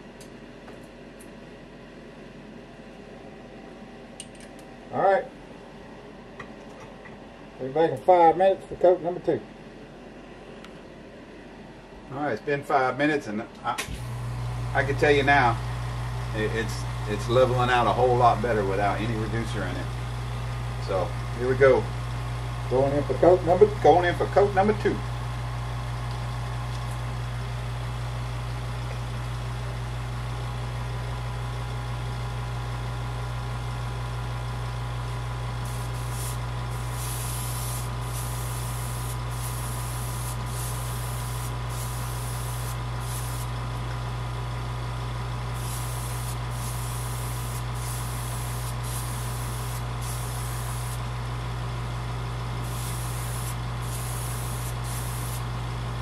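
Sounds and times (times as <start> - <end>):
low motor hum: 13.9 - 23.9, 24.8 - 56.0
airbrush hissing: 35.6 - 43.5, 45.5 - 51.0, 52.6 - 55.5.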